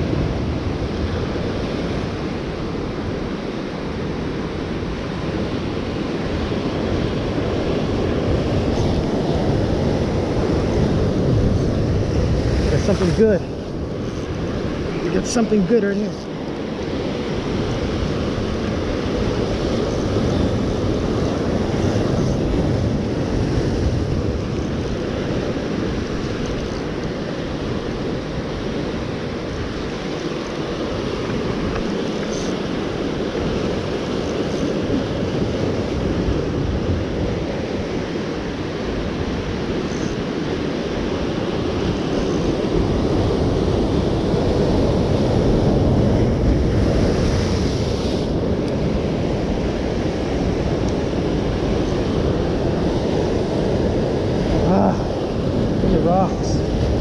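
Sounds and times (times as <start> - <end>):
wind buffeting microphone: 0.0 - 57.0
surf breaking over rocks: 5.1 - 39.7.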